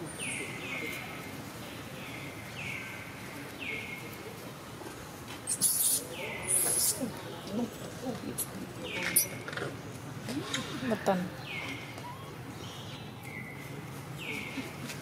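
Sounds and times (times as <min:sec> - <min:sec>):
infant monkey squeaking: 0:05.5 - 0:07.1, 0:12.0 - 0:12.4.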